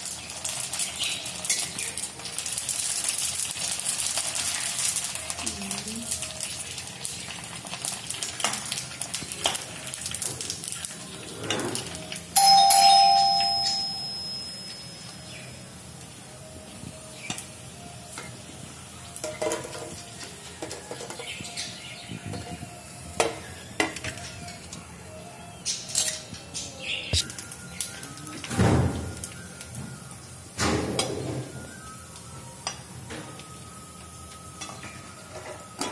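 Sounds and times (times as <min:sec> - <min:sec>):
food frying in hot oil: 0:00.0 - 0:12.4, 0:14.6 - 0:25.0, 0:27.1 - 0:35.9
loud chime: 0:12.4 - 0:15.5.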